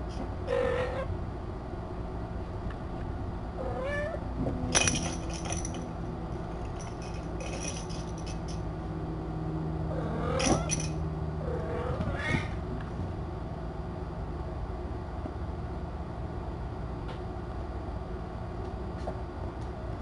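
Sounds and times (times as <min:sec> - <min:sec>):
cat meowing: 0:03.6 - 0:04.2.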